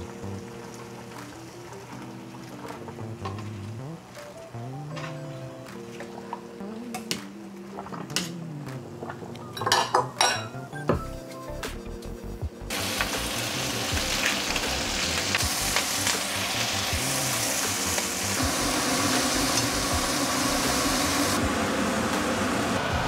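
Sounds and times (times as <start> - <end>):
food sizzling in hot oil: 12.7 - 21.4.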